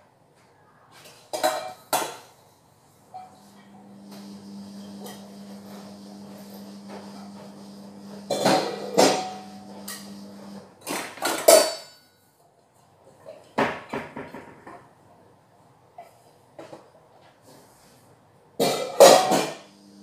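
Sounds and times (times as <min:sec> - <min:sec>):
metal pots and pans clanking: 0:01.3 - 0:02.3, 0:08.2 - 0:10.2, 0:10.8 - 0:11.9, 0:18.6 - 0:19.7
steady low hum: 0:03.4 - 0:10.6.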